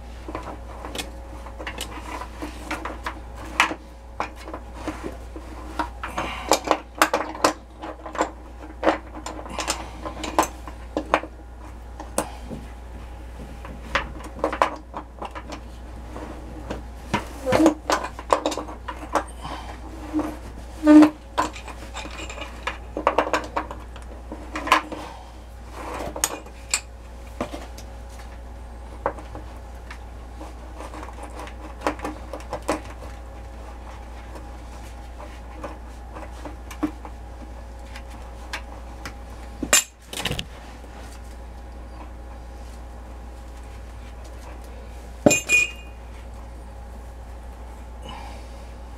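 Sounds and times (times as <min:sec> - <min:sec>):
metal tools tapping and scraping: 0:45.3 - 0:46.0.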